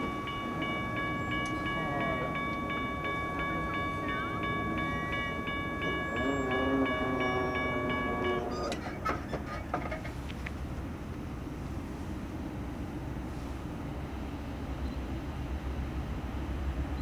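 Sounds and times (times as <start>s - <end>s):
bell ringing rapidly: 0.0s - 8.7s
distant locomotive horn: 0.0s - 9.6s.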